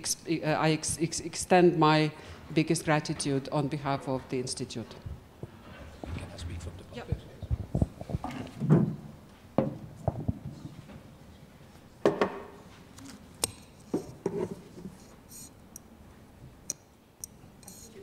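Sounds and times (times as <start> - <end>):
microphone handling knocks and clicks: 5.0 - 10.9.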